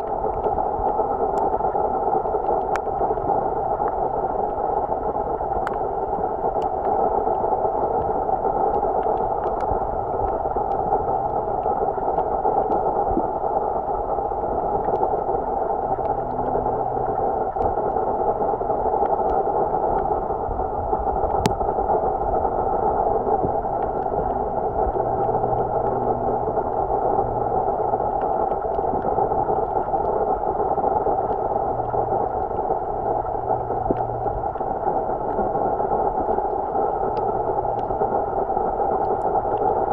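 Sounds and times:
sharp underwater clicks: 0.0s - 1.6s, 5.5s - 13.3s
muffled underwater noise: 0.0s - 39.9s.

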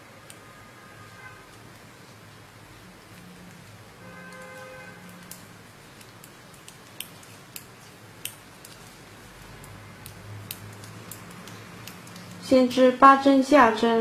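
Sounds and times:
knitting needles clicking: 4.3s - 12.5s.

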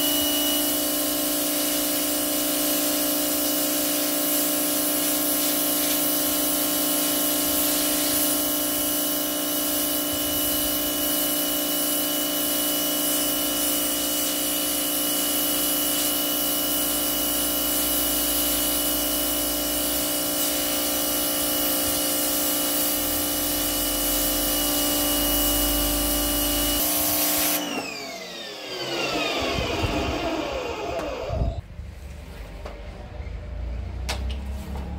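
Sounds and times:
pressure washer running: 0.0s - 31.6s
water jet hissing on paving: 1.0s - 24.5s.

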